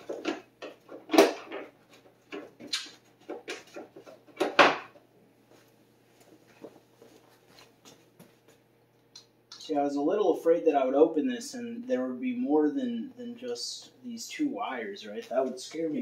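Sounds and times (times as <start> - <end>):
hard objects knocking and clattering: 0.0 - 5.0.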